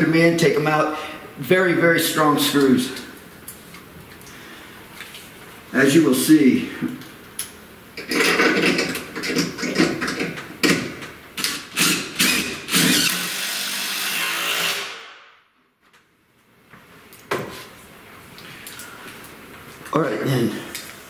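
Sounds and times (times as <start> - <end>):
impact driver driving screws: 11.4 - 15.1.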